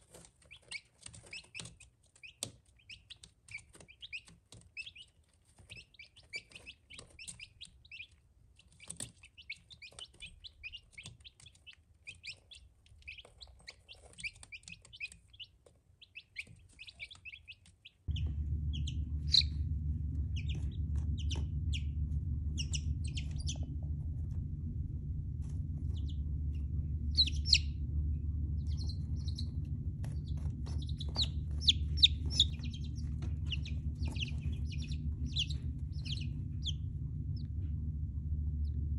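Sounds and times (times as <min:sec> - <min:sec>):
chicks peeping: 0:00.0 - 0:24.6, 0:25.4 - 0:38.8
steady low hum: 0:16.1 - 0:38.9.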